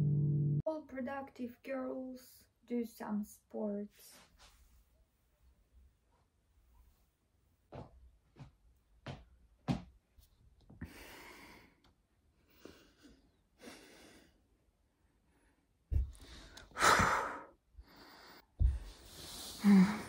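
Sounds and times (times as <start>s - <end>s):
person breathing hard: 10.8s - 11.8s, 12.4s - 14.4s, 16.0s - 20.0s.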